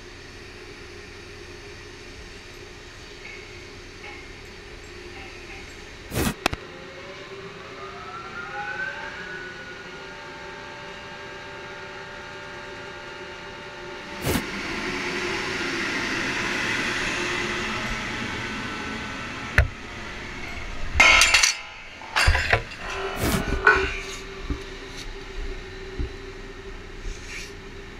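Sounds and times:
steel on steel clanks: 0:21.0 - 0:25.1.

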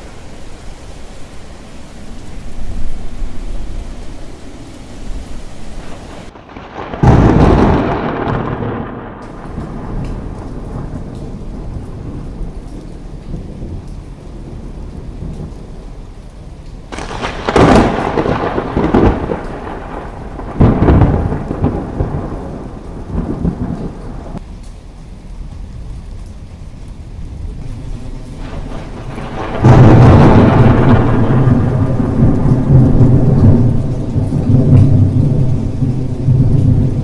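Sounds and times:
steady rain: 0:00.0 - 0:37.0
thunder cracks and rumbles: 0:05.8 - 0:16.0, 0:16.8 - 0:24.4, 0:25.2 - 0:37.0.

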